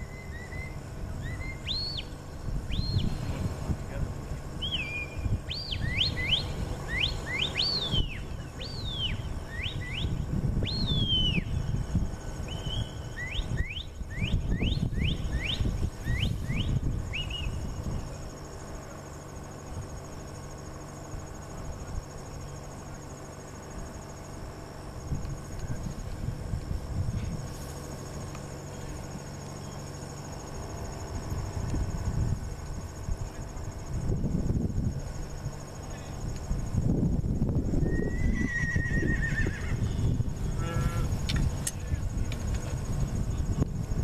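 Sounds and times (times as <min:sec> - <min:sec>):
sharp rising whistles: 0:00.0 - 0:03.4, 0:04.6 - 0:18.2, 0:37.5 - 0:40.4
crickets chirring: 0:00.0 - 0:44.0.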